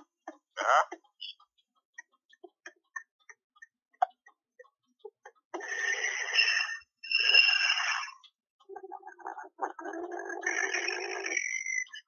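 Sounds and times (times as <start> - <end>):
faint clicking vocal sounds: 0.0 - 5.6, 8.1 - 12.0.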